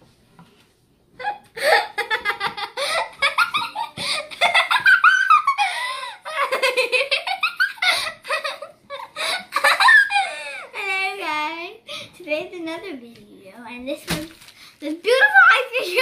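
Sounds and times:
girl laughing: 1.2s - 10.8s.

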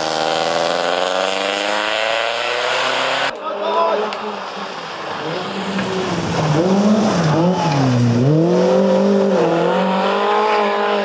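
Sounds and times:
rally car engine passing: 4.0s - 11.0s.

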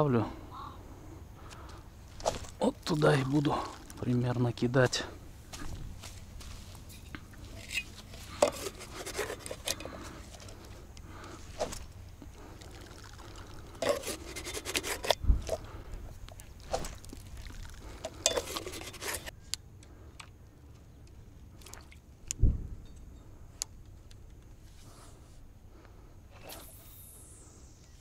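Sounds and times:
fishing gear rattling and scraping: 6.1s - 15.7s, 16.5s - 19.3s
wind rumble on microphone: 15.2s - 16.1s, 22.3s - 23.1s.

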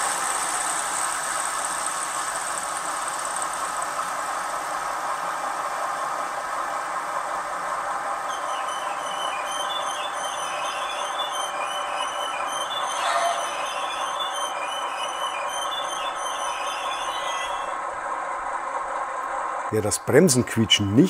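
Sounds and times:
model diesel engine sound: 0.0s - 21.0s
brake squeal: 8.3s - 17.8s.

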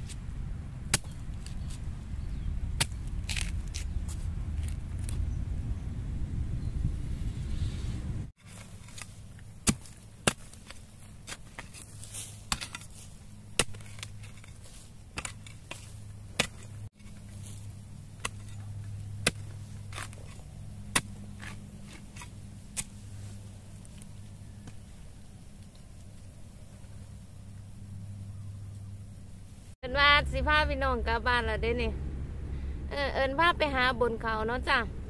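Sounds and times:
low steady hum: 0.0s - 35.0s
digging tool chopping soil: 0.9s - 1.9s, 2.7s - 4.8s, 8.4s - 24.9s.

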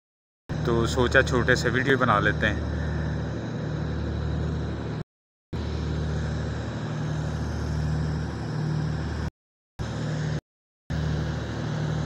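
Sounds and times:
low engine-like hum: 0.5s - 5.0s, 5.6s - 12.0s.

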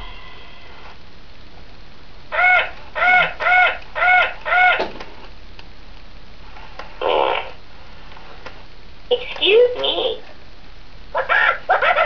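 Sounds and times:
toy parrot squawking: 2.3s - 4.8s, 11.2s - 12.0s.

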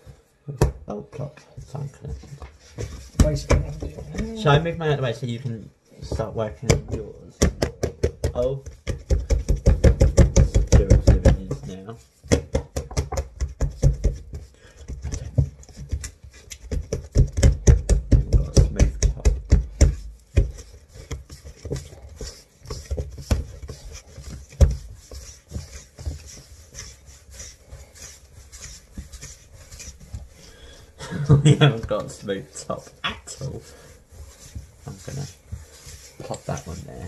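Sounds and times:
hands rubbing dough on surface: 1.1s - 5.0s, 5.8s - 37.0s
dough thumping on counter: 6.7s - 14.4s, 16.7s - 21.8s.

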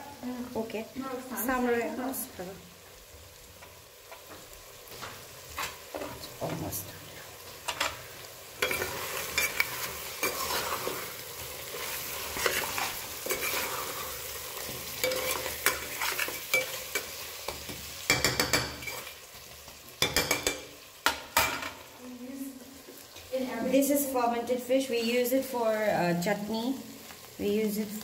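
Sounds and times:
food sizzling in a pan: 0.0s - 28.0s
utensil scraping a pan: 7.7s - 19.2s.

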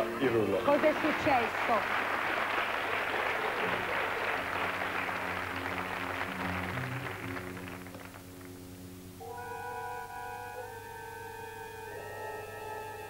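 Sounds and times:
studio audience applause: 0.0s - 8.6s
dramatic tv music: 3.4s - 9.7s.

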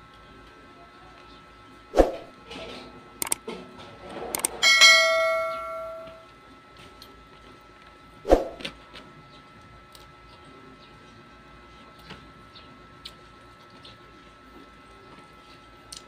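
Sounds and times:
bright bell ding: 4.6s - 6.2s.

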